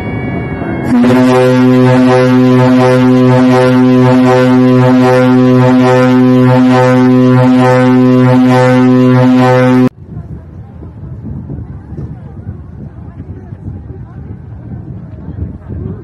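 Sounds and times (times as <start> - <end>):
ship's horn blast: 0.8 - 9.9.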